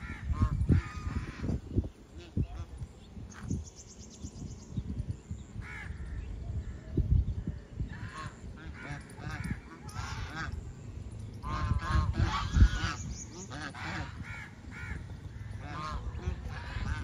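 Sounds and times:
geese honking: 0.0 - 2.8, 7.9 - 10.8, 11.4 - 17.0.

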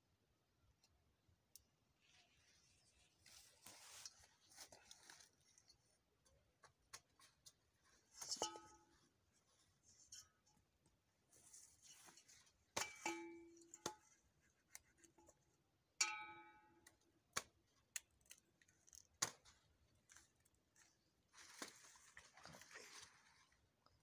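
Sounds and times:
metal basin ringing: 12.8 - 13.7, 16.0 - 16.8.

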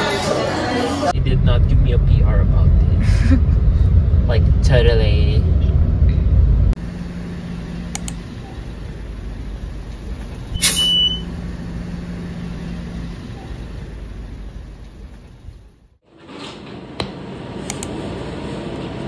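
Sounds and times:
vehicle engine rumble: 0.0 - 16.0
high beep: 10.6 - 11.3.

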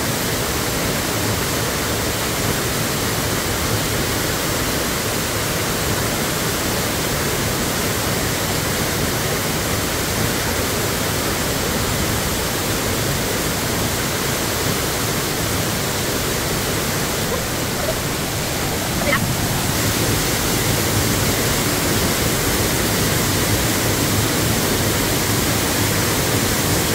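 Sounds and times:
waterfall rushing: 15.2 - 26.9.

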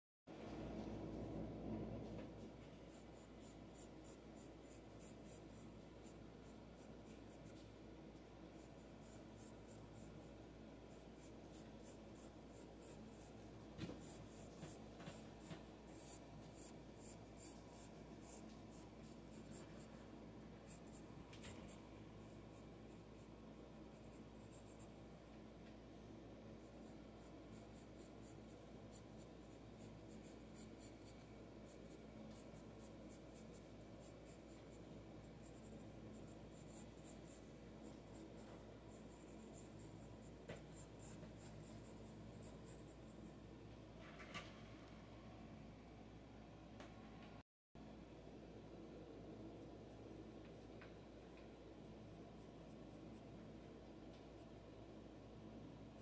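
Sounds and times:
pencil scratching on paper: 2.6 - 25.3, 26.4 - 43.6
pencil ticks: 14.0 - 19.9.

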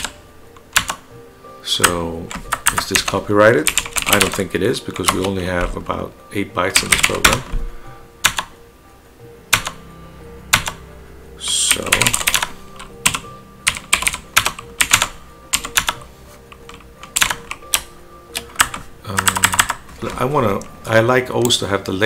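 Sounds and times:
computer keyboard typing: 0.0 - 1.0, 1.8 - 5.4, 6.8 - 7.5, 8.2 - 8.5, 9.5 - 9.8, 10.5 - 10.8, 11.4 - 20.7.

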